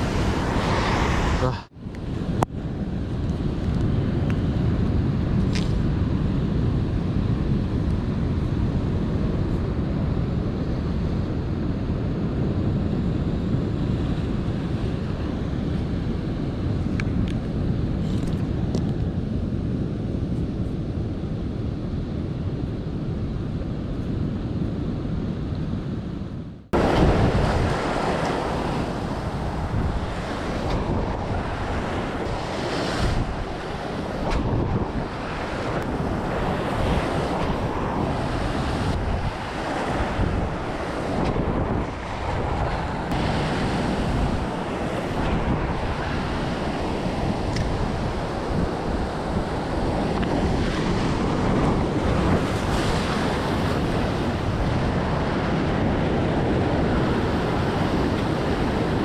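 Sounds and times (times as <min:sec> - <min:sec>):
wind rumble on microphone: 0:00.0 - 0:59.0
surf breaking over rocks: 0:26.8 - 0:59.0.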